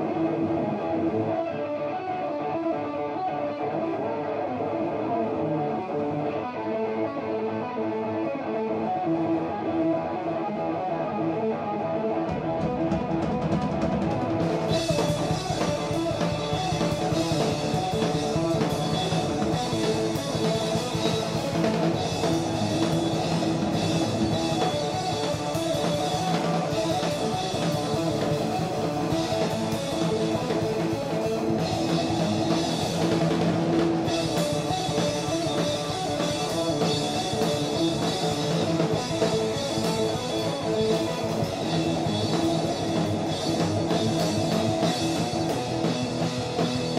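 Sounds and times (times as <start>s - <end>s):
electric guitar: 0.0s - 46.9s
drums playing: 12.3s - 46.9s.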